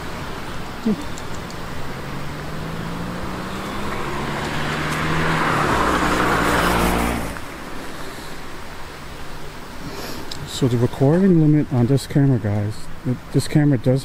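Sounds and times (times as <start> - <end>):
car passing: 0.0 - 8.8.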